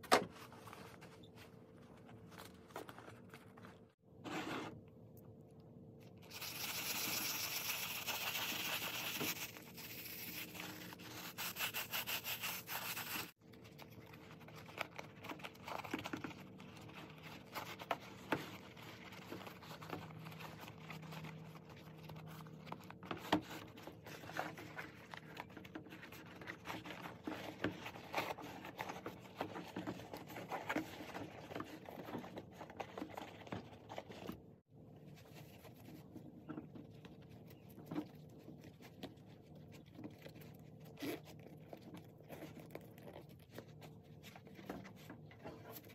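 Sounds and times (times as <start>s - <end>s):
eraser scrubbing suede: 6.3s - 13.3s
rubbing and handling of bag: 7.6s - 45.9s.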